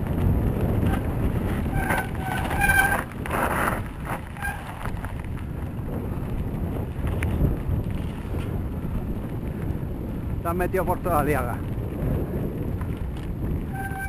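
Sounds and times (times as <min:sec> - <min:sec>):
wind buffeting microphone: 0:00.0 - 0:14.0
high-pitched squeals: 0:01.7 - 0:03.1, 0:13.7 - 0:14.0.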